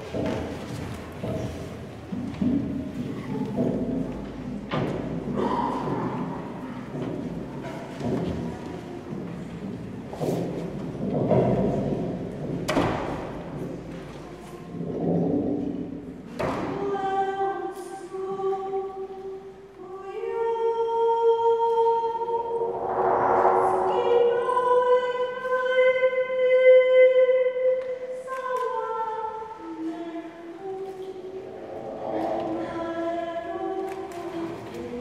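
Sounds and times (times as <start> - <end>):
rushing swell: 22.4 - 25.5, 30.9 - 34.2.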